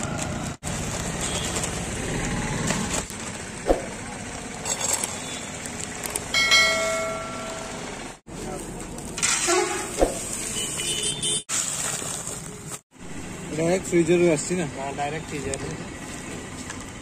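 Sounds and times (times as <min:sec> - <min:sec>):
plastic packet handling: 0:11.5 - 0:12.8.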